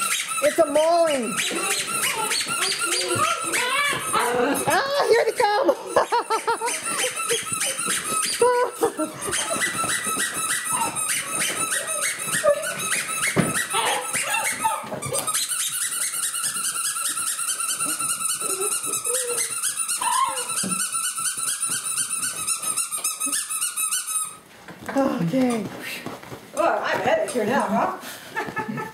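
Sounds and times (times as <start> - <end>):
puppies squeaking: 0.0 - 24.5
puppies growling: 1.1 - 15.3, 17.2 - 20.8.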